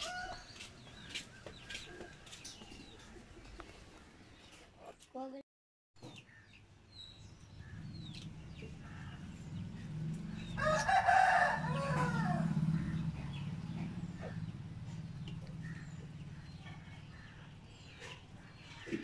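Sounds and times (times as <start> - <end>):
rooster crowing: 10.5 - 13.1.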